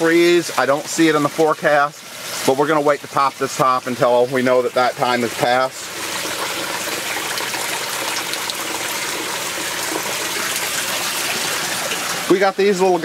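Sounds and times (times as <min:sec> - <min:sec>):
running water rushing: 0:00.0 - 0:13.0.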